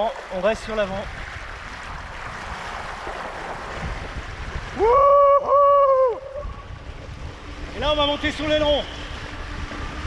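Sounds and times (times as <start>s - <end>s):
water rushing: 0.0s - 10.0s
wind: 0.0s - 10.0s
person whooping: 4.8s - 6.5s.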